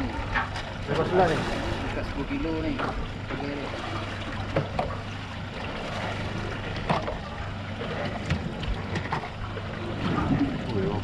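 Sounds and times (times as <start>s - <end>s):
boat engine idling: 0.0s - 11.0s
water noise: 0.0s - 11.0s
wind: 0.0s - 11.0s
sharp knocks on boat: 4.4s - 5.0s, 6.7s - 7.2s, 8.0s - 9.3s.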